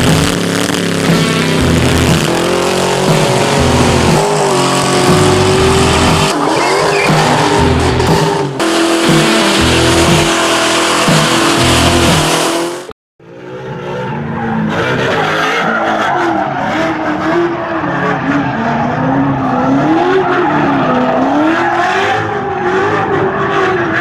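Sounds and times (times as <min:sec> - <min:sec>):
car engine at high revs: 0:00.0 - 0:24.0
tyres squealing: 0:04.2 - 0:08.5.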